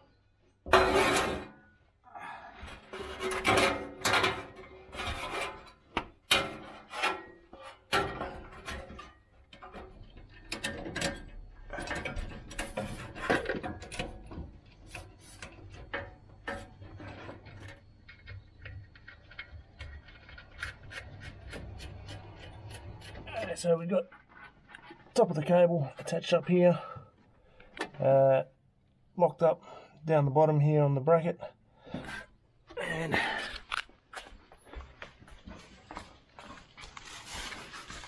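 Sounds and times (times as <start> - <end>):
metal scraping: 0.6 - 1.8, 2.6 - 27.0.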